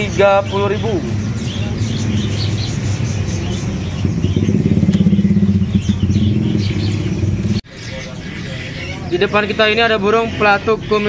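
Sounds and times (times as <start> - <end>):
vehicle engine running: 0.0 - 7.6
songbirds chirping: 0.0 - 11.0.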